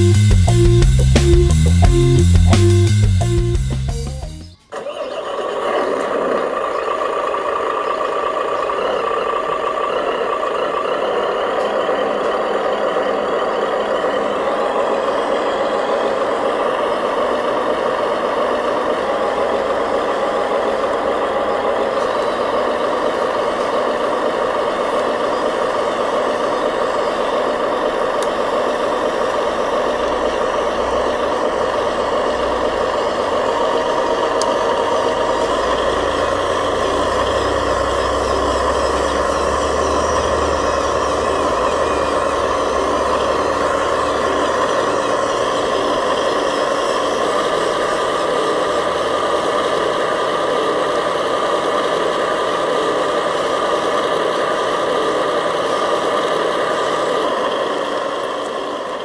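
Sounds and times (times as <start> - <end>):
low rumble: 0.0 - 4.4
remote-control truck drone: 0.0 - 59.0.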